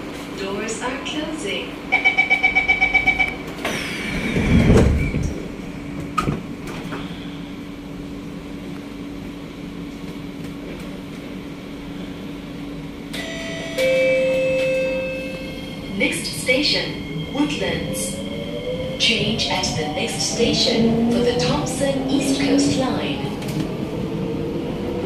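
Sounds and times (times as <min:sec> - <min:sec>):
stopped train humming: 0:00.0 - 0:25.0
train doors sliding shut: 0:03.5 - 0:07.2.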